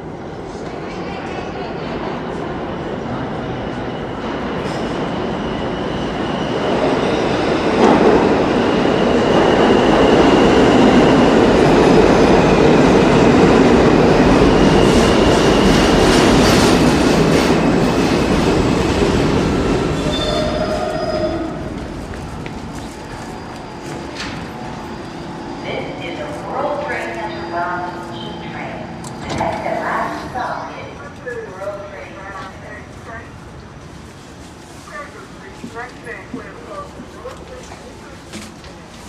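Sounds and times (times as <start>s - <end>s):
subway train rumbling: 0.0s - 39.0s
steel wheels squealing on rail: 19.8s - 28.4s.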